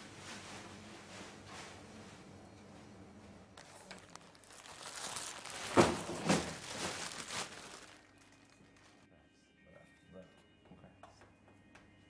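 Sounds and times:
plastic bag rustling and crumpling: 0:03.6 - 0:09.0.

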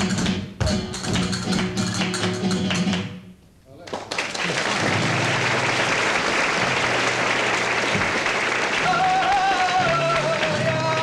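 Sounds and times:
audience applauding: 0:03.9 - 0:11.0
man singing flamenco: 0:08.8 - 0:11.0.

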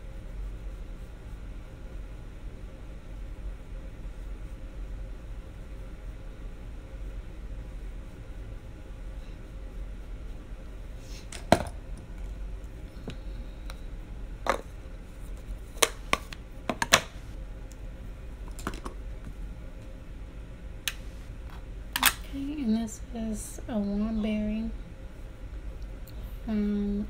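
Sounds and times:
low steady hum: 0:00.0 - 0:27.0
makeup cases clicking and tapping: 0:15.8 - 0:17.1.

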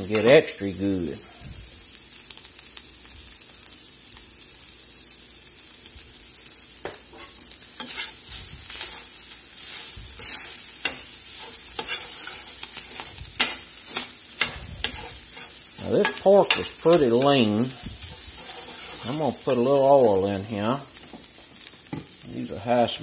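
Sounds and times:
spatula scraping a pan: 0:00.0 - 0:00.5, 0:07.1 - 0:20.3
meat sizzling in a skillet: 0:00.0 - 0:23.0.

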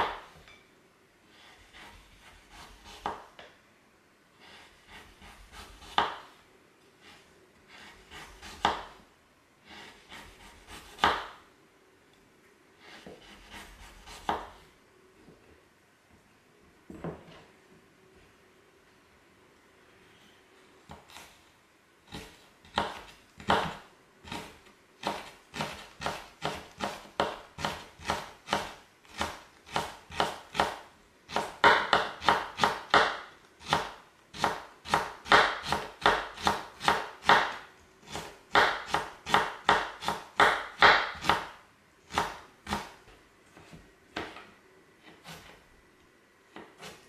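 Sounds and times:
knife slicing on cutting board: 0:07.0 - 0:08.9, 0:12.8 - 0:14.6.

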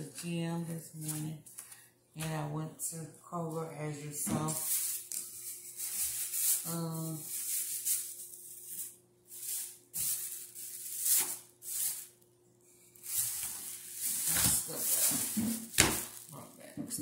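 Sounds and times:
close rustling: 0:13.0 - 0:16.5.

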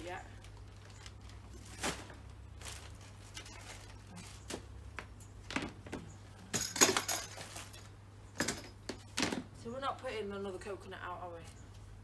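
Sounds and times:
plastic packets rustling: 0:00.0 - 0:04.8.

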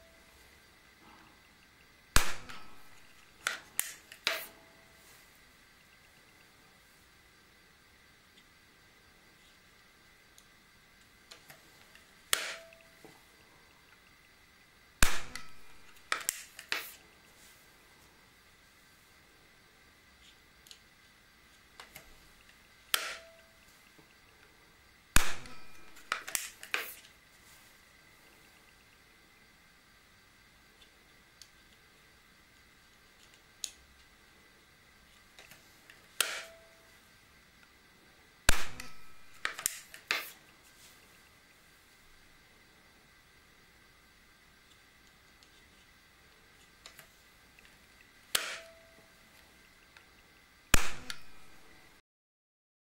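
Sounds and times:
air pistol firing crack: 0:02.1 - 0:04.5, 0:15.0 - 0:17.0, 0:25.2 - 0:27.0, 0:38.5 - 0:40.4, 0:50.7 - 0:51.5.

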